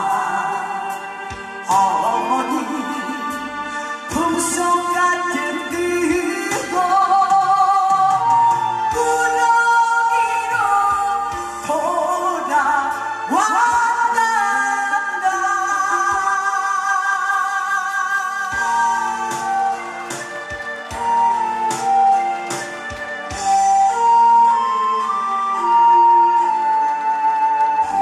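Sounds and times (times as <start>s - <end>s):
woman singing: 0.0s - 20.4s
amplified backing track: 0.0s - 28.0s
drum beats: 18.4s - 25.8s.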